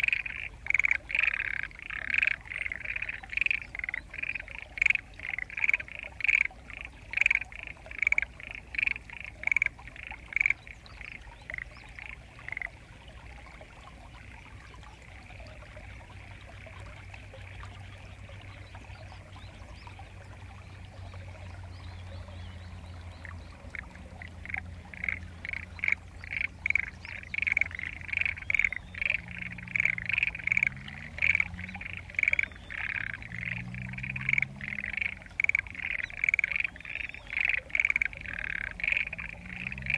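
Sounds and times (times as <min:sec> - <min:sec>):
frogs calling in rapid pulses: 0:00.0 - 0:12.8, 0:23.0 - 0:39.9.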